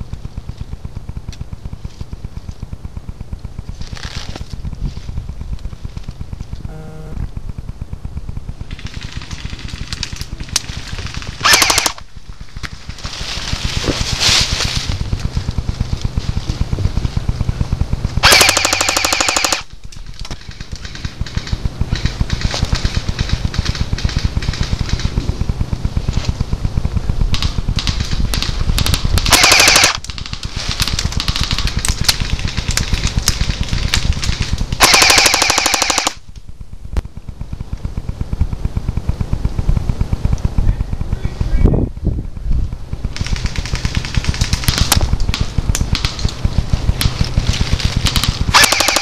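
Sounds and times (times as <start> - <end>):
airsoft guns firing rapidly: 8.7 - 12.1, 18.2 - 19.7, 20.3 - 36.2, 43.0 - 49.0.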